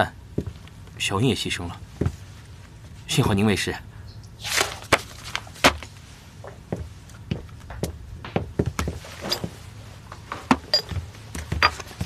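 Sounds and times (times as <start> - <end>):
footsteps walking across a room: 0.3 - 1.0, 1.9 - 2.8, 4.9 - 12.0.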